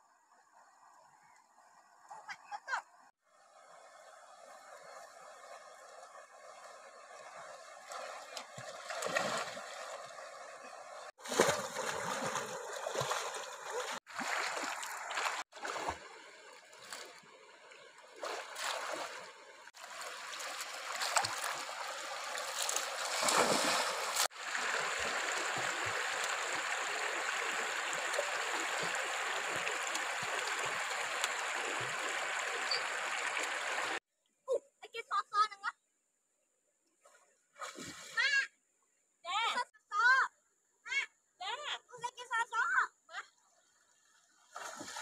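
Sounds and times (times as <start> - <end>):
water splashing from wading: 4.2 - 34.0, 37.6 - 38.2, 44.5 - 45.0
river water rushing: 8.8 - 17.0, 18.2 - 34.0.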